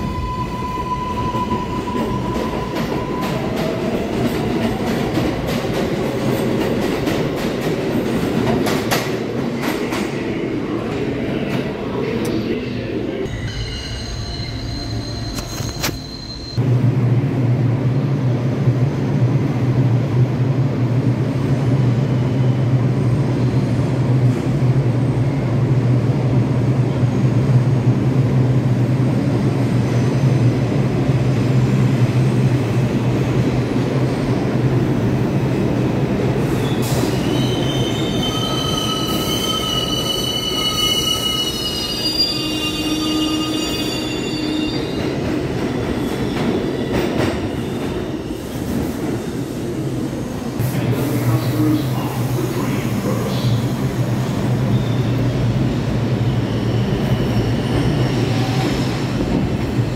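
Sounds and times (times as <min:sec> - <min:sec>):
subway train rumbling: 0:00.0 - 0:59.9
wheel and brake squeals: 0:13.4 - 0:16.6, 0:36.6 - 0:45.2, 0:56.2 - 0:58.8.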